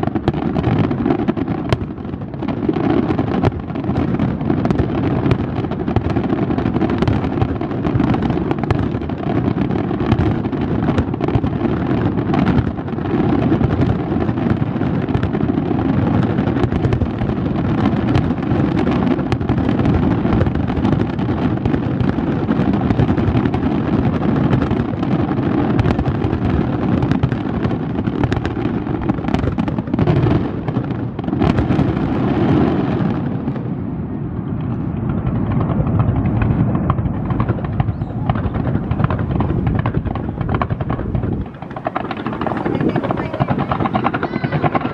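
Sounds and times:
fireworks crackling: 0.0s - 44.9s
deep rumble: 34.7s - 44.9s.

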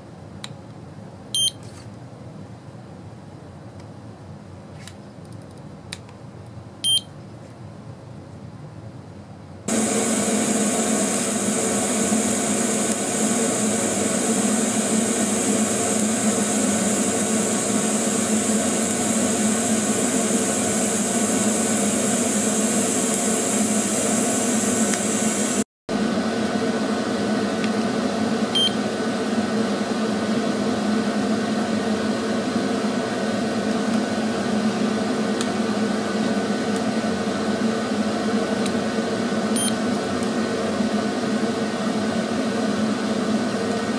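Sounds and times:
welder arc hissing: 9.7s - 25.7s.

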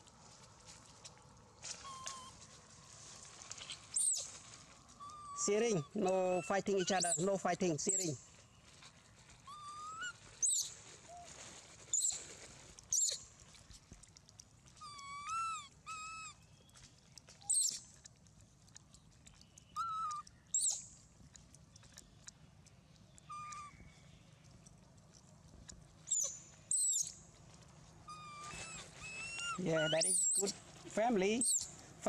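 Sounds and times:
sharp high squeaks: 3.6s - 4.3s, 9.4s - 11.3s, 11.9s - 12.2s, 12.9s - 13.2s, 17.4s - 17.8s, 26.1s - 27.2s, 28.1s - 30.6s, 31.4s - 31.7s
monkeys cooing: 5.3s - 7.3s, 28.1s - 30.6s.

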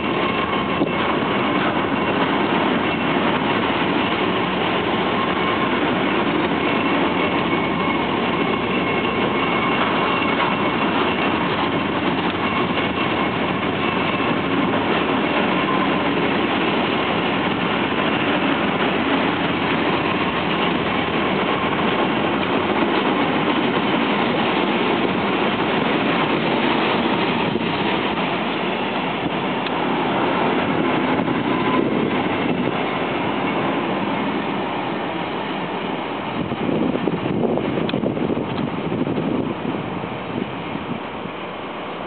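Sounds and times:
freight wagons rolling on rails: 0.0s - 42.0s.

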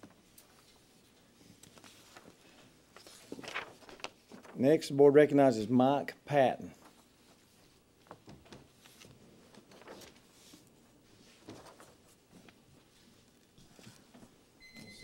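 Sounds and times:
faint taps and rustles: 8.0s - 10.2s.

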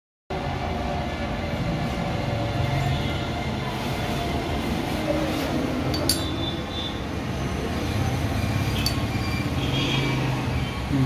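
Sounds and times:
sharp metal clink: 5.9s - 6.5s, 8.8s - 9.1s.

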